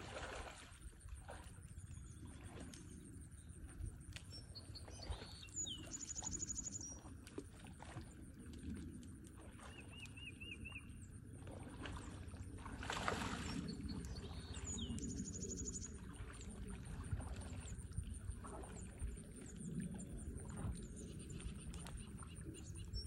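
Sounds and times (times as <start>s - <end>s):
water lapping and sloshing: 0.0s - 23.0s.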